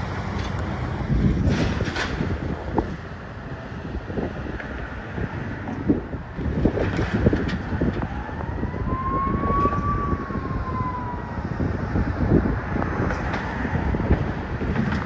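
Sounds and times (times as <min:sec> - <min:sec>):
wind buffeting microphone: 0:00.0 - 0:15.0
siren wail: 0:06.6 - 0:14.4.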